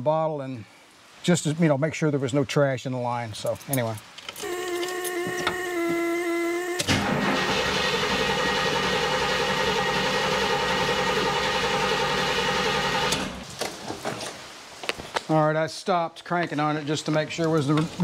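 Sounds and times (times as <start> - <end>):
car engine cranking on starter: 4.4 - 13.5.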